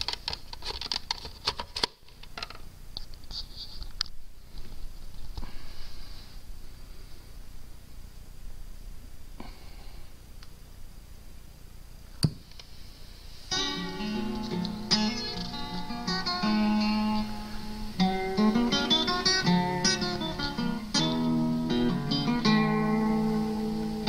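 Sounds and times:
guitar music: 0:13.5 - 0:24.0.

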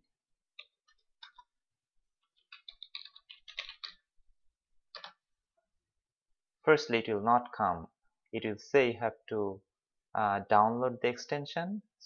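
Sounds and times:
faint keyboard typing: 0:00.5 - 0:01.6, 0:02.2 - 0:04.1, 0:04.9 - 0:05.2.

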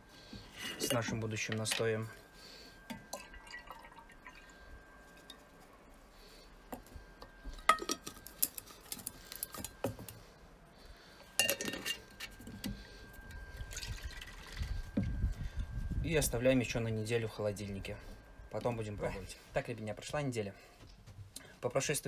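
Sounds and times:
glass jar and kitchenware clinking: 0:02.9 - 0:04.4, 0:07.6 - 0:08.6, 0:11.4 - 0:12.3.

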